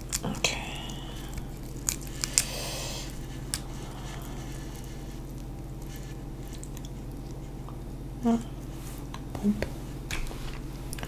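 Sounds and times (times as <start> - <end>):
shrimp shell cracking: 0.0 - 7.8
crinkly shell rustle: 0.0 - 7.9
low hum: 0.0 - 11.0.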